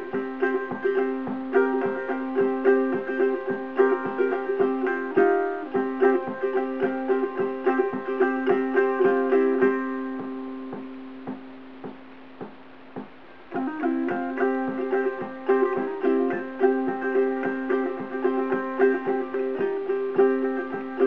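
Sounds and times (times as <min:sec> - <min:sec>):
fingerpicked ukulele: 0:00.0 - 0:21.0.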